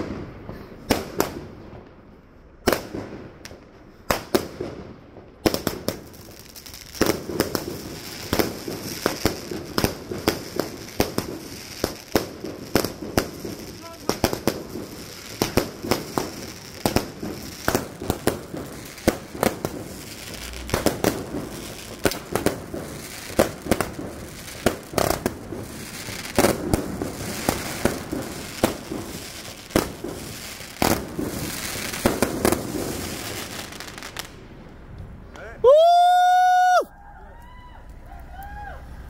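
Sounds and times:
firework bangs: 0.0 - 34.7
firework crackling: 0.0 - 36.9.

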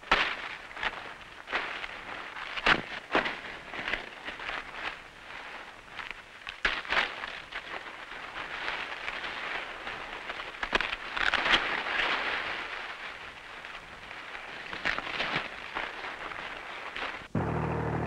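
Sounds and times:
corn stalks snapping: 0.0 - 5.0, 5.8 - 17.3
dry corn leaves rustling: 0.0 - 17.3.

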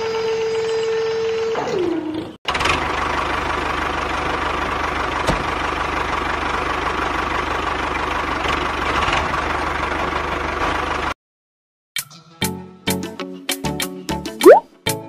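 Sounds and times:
tractor engine idling: 2.6 - 11.1.

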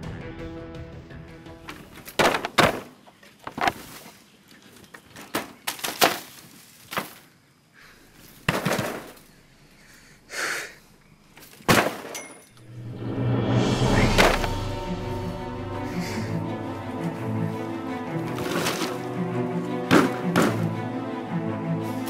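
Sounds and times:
music: 0.0 - 2.2, 12.6 - 22.0
bamboo knocking and rattling: 1.7 - 7.3, 8.4 - 9.3, 18.2 - 19.0, 19.8 - 20.8.

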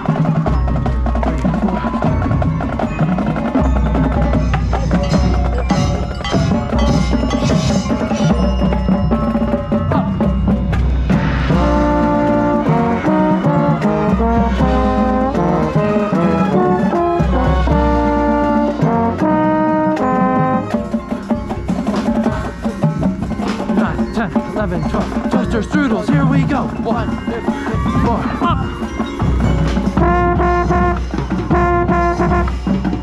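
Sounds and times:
drums: 0.0 - 33.0
brass chords: 9.5 - 21.1, 23.5 - 33.0.

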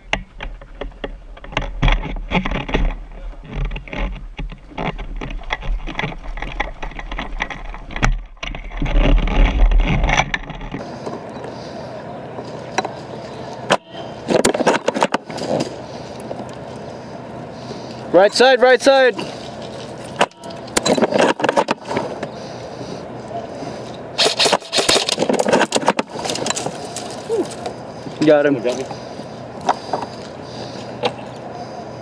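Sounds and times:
gear knocking and rattling: 0.0 - 10.8, 24.2 - 29.0.

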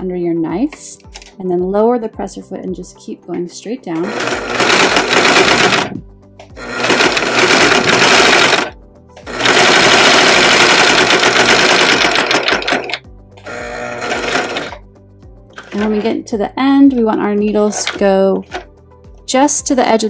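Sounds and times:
serger stitching fabric: 4.0 - 5.9, 6.6 - 8.7, 9.3 - 14.8.

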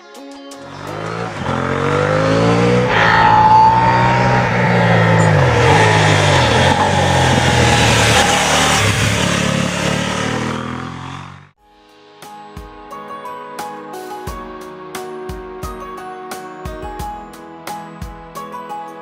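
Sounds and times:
motorcycle engine running hard: 0.6 - 11.5
road and wind noise: 0.7 - 11.5.

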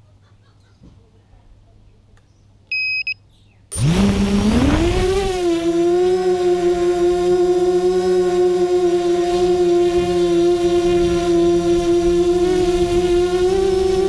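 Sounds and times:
short electronic beeps: 2.7 - 4.0
drone motors whining: 3.7 - 14.0.

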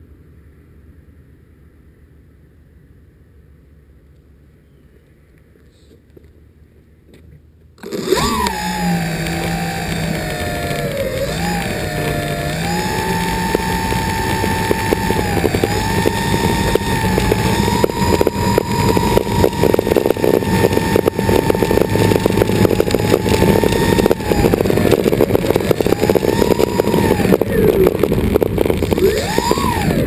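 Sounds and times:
model airplane engines running: 7.8 - 30.0.

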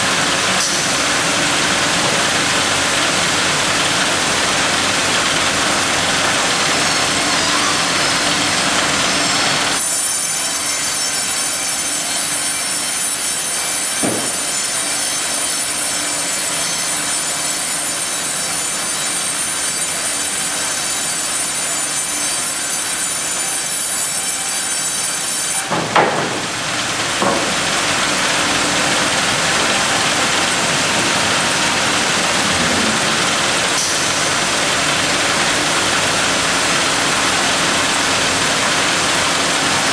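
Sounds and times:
bandsaw sawing a log: 0.0 - 39.9
high whine of saw cut: 5.6 - 25.7, 28.4 - 39.9
knocks: 14.0 - 14.4, 25.7 - 26.5, 27.2 - 27.5.

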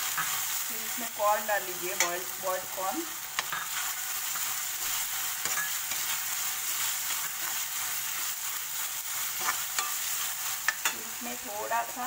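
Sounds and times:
vegetables sizzling in hot pan: 0.0 - 12.0
metal spoon stirring: 3.4 - 8.3, 9.1 - 11.0.

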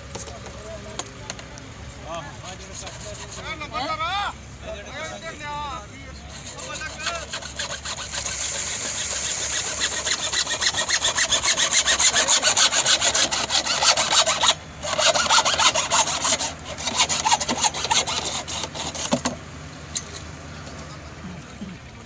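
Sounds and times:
hacksaw cutting plastic pipe: 6.3 - 19.4.

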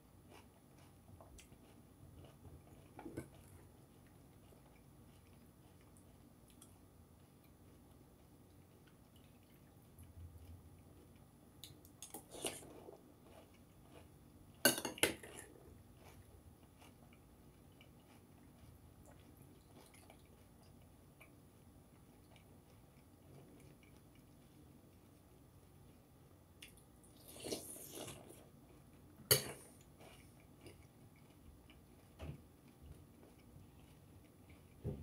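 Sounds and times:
chewing cereal: 0.1 - 34.9.

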